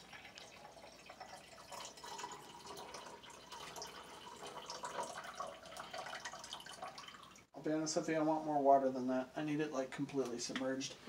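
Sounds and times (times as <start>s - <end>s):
water pouring into glass: 0.0s - 7.5s.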